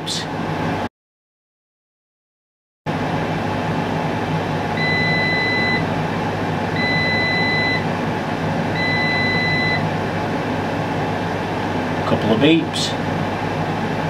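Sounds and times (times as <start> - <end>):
fans whirring: 0.0 - 0.9, 2.9 - 14.0
high beeps: 4.8 - 5.8, 6.8 - 7.8, 8.8 - 9.8.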